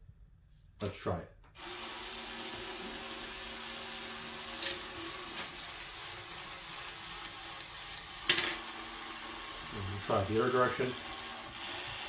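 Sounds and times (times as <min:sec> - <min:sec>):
toy robot gears whirring: 0:03.1 - 0:08.6.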